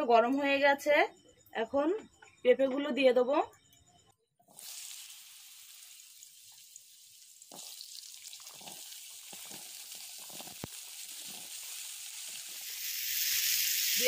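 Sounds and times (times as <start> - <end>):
food sizzling in hot oil: 4.4 - 14.0.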